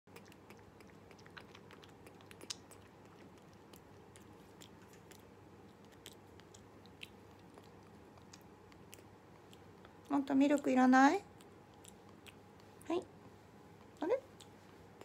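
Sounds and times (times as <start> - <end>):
monkey mouth clicks and smacks: 0.1 - 10.7.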